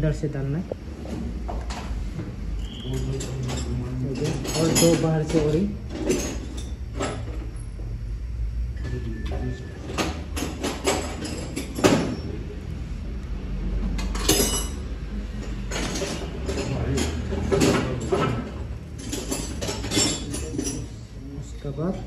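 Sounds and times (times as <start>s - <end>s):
steady low hum: 0.0s - 22.0s
metal chain clinking: 2.7s - 7.5s, 10.4s - 12.3s, 14.1s - 14.9s, 15.7s - 21.0s.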